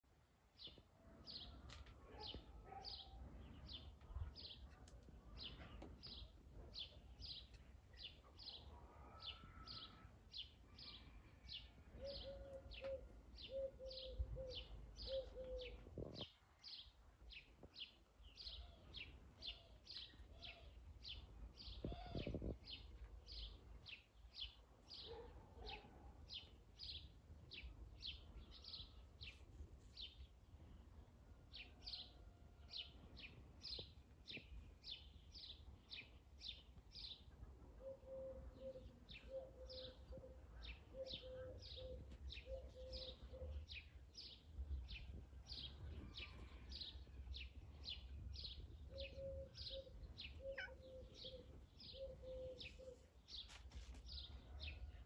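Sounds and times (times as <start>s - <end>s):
small bird chirping: 48.9s - 53.6s.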